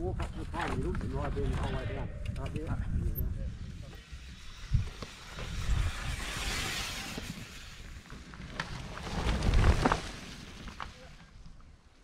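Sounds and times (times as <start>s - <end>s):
wind rumbling on microphone: 0.0s - 10.8s
bike tyre hiss on mud: 4.0s - 8.2s.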